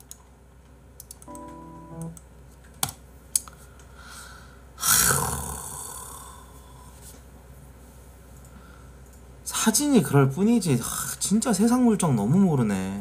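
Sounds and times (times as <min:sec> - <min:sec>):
soft background music chord: 0:01.2 - 0:02.4.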